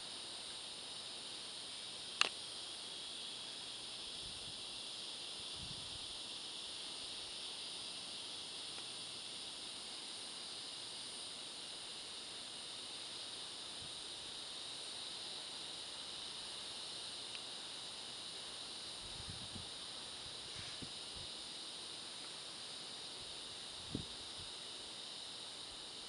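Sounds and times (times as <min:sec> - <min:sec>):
insect chorus hissing: 0:00.0 - 0:26.0
sharp click: 0:02.2 - 0:02.4.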